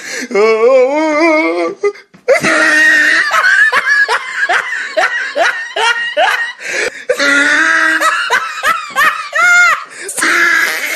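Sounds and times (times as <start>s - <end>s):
person laughing hard: 2.3s - 10.9s.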